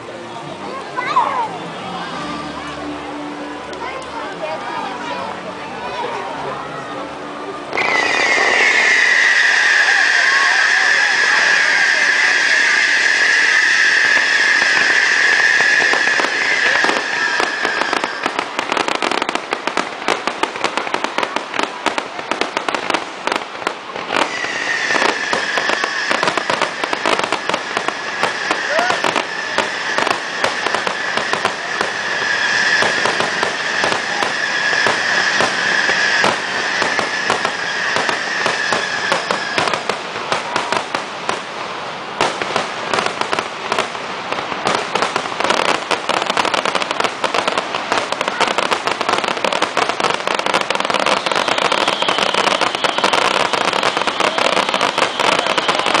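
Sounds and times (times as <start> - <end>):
fireworks bangs and crackles: 7.6 - 56.0
steady high whistle: 7.7 - 19.0, 24.2 - 39.8, 50.7 - 56.0.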